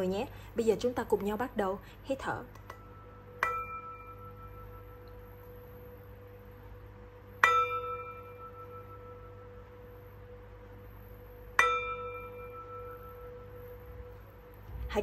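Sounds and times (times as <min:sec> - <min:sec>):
singing bowl ringing: 0:02.7 - 0:14.7.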